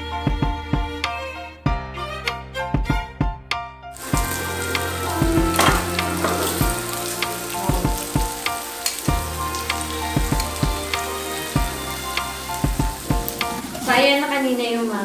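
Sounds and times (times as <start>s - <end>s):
meat sizzling on a grill: 4.0s - 15.0s.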